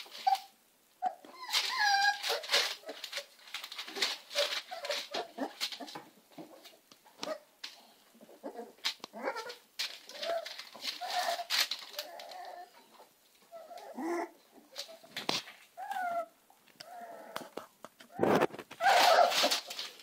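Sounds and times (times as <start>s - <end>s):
puppies whimpering and squeaking: 0.0s - 7.5s, 8.2s - 15.2s, 15.8s - 17.5s, 18.1s - 19.9s
newspaper crackling: 1.4s - 6.0s, 8.8s - 12.7s, 18.0s - 20.0s.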